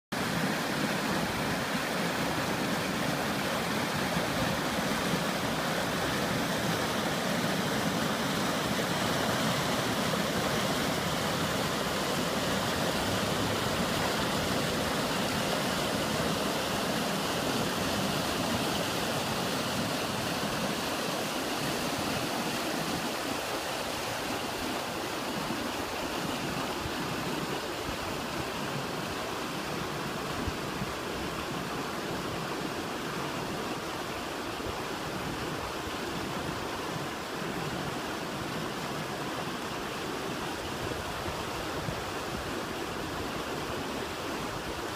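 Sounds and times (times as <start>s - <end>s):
creek rapids rushing over rocks: 0.1s - 44.9s.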